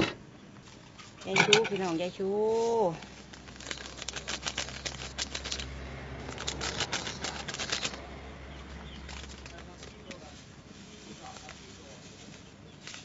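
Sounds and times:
rapid crackling: 2.7s - 13.0s.

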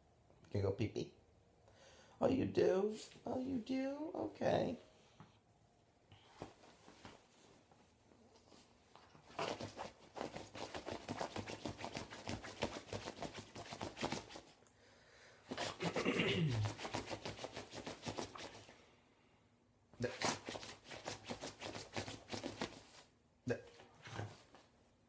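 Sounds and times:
dog rustling and scratching duvet: 6.3s - 14.6s, 16.6s - 18.7s, 20.1s - 23.1s.

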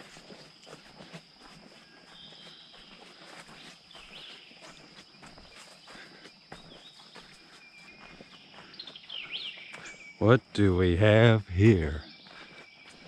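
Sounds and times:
footsteps crunching on dry leaves: 0.0s - 9.8s
high insect drone: 0.0s - 13.0s
bird chirps: 2.0s - 10.5s.

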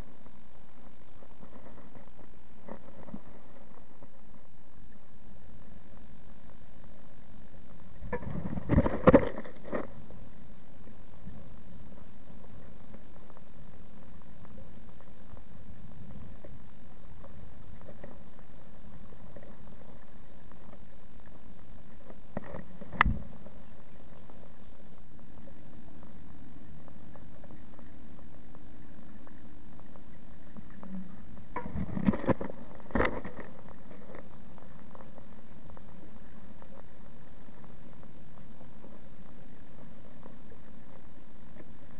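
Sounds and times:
nestlings begging calls: 9.6s - 25.3s.

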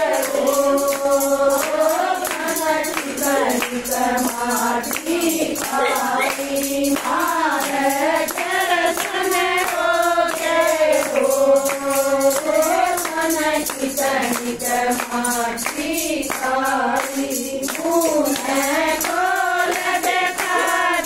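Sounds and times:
hands clapping a beat: 0.0s - 21.0s
women singing devotional song: 0.0s - 21.0s.

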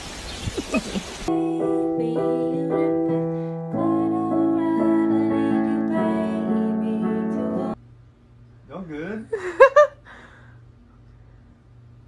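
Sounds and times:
piano chords and melody: 1.3s - 7.8s.

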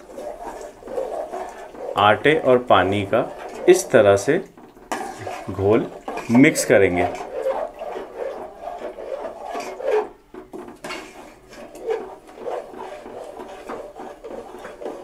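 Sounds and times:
spoon stirring thick gravy: 0.0s - 15.0s.

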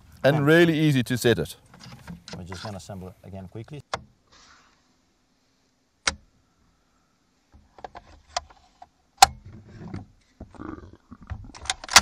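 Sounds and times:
rifle parts clicking and snapping: 11.5s - 12.0s.

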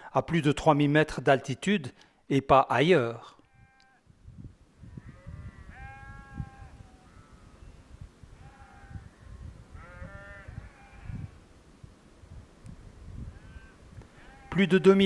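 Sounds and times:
sheep bleating: 3.4s - 4.0s, 5.0s - 7.4s, 8.4s - 11.3s, 13.4s - 15.0s.

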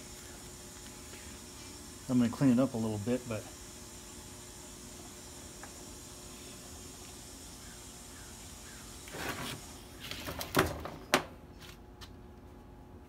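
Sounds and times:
motor scraping on workbench: 9.0s - 10.6s.

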